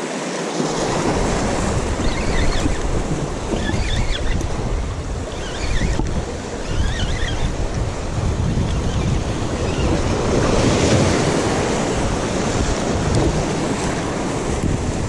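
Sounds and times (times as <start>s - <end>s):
wind buffeting microphone: 0.8s - 15.0s
surf breaking on rocks: 7.5s - 15.0s.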